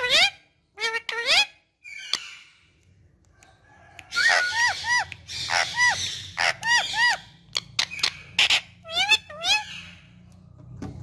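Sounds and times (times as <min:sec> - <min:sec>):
parrot whistles and squawks: 0:04.1 - 0:10.1.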